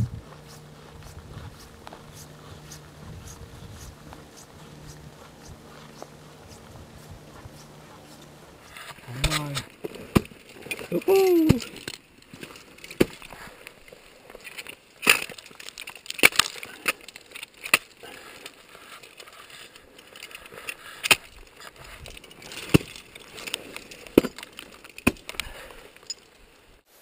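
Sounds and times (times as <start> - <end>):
ice axe striking ice: 8.7 - 19.6, 20.8 - 26.3
ice crunching and breaking: 8.8 - 26.4.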